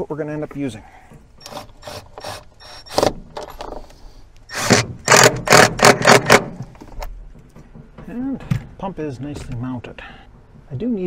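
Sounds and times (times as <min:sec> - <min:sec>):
cordless drill driving screws: 0:01.4 - 0:03.2, 0:04.5 - 0:06.6.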